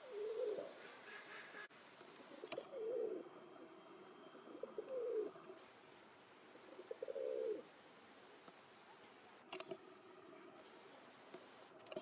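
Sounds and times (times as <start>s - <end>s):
pigeons cooing: 0.0s - 1.6s, 2.2s - 5.6s, 6.5s - 7.6s.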